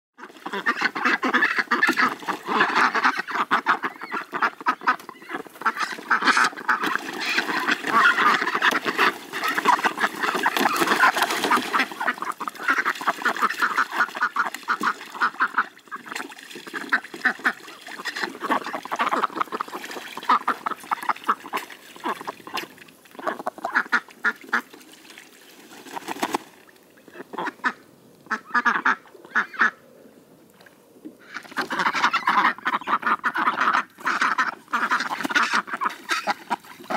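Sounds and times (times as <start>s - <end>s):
ducks quacking: 0.2s - 24.7s, 27.1s - 29.8s, 31.2s - 36.9s.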